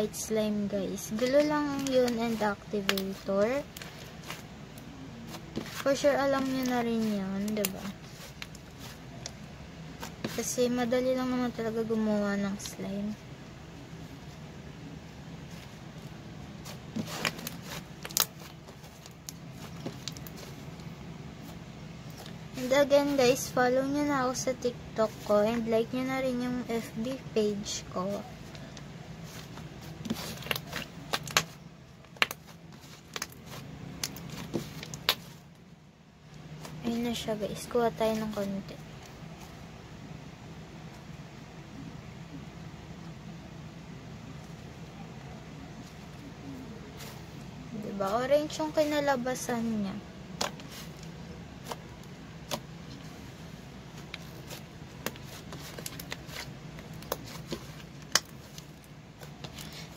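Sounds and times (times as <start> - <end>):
steady low hum: 0.0 - 59.9
slime kneaded by hand: 0.1 - 13.1, 15.4 - 35.5, 50.4 - 59.9.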